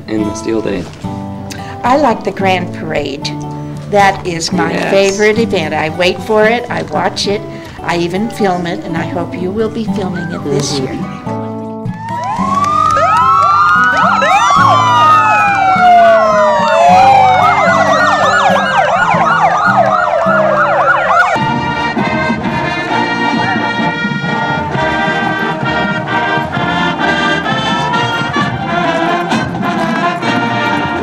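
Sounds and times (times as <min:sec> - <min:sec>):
music: 0:00.0 - 0:31.0
marching band playing: 0:07.8 - 0:31.0
motorcycle sirens wailing: 0:11.9 - 0:31.0.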